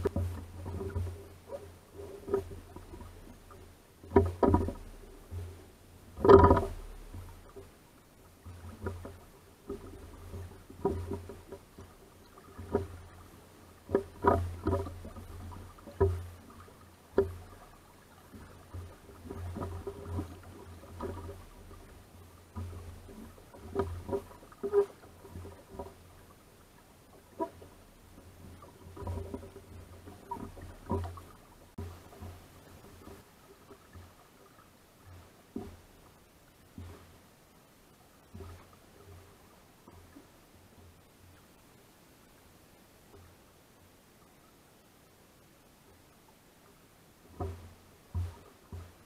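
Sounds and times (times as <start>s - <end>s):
water slapping against boat hull: 0.0s - 7.7s, 8.4s - 26.4s, 27.2s - 35.9s, 47.3s - 49.0s.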